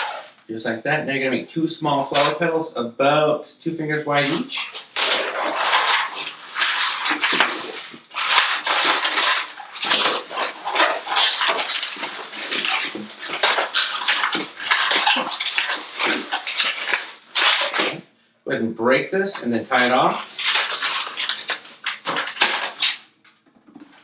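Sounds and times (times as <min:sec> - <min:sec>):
balloon squeaking: 0:00.0 - 0:00.4, 0:04.2 - 0:18.0, 0:19.3 - 0:23.1.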